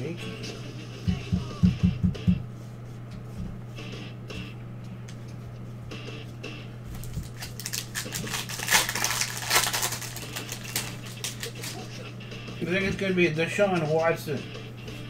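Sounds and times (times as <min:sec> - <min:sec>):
steady low hum: 0:00.0 - 0:15.0
foil wrapper crinkling and tearing: 0:06.9 - 0:11.9.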